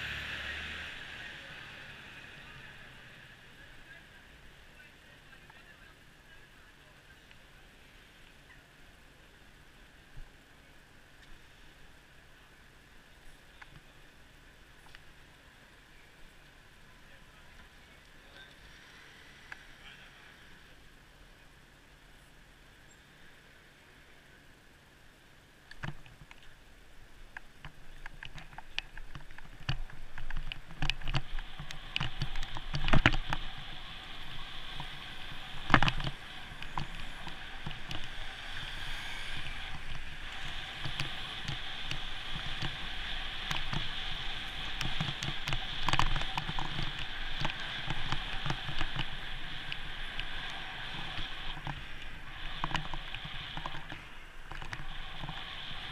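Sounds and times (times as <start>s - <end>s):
bicycle rattling clicks and knocks: 27.6s - 38.5s, 39.3s - 55.9s.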